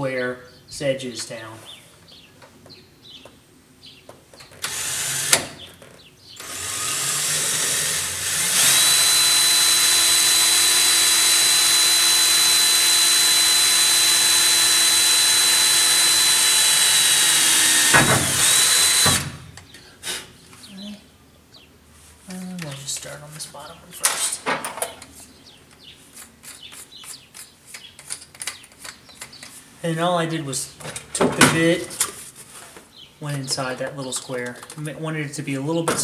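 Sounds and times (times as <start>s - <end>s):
cordless drill whining through metal: 4.5s - 19.6s
drill click: 4.6s - 5.7s, 6.4s - 19.7s.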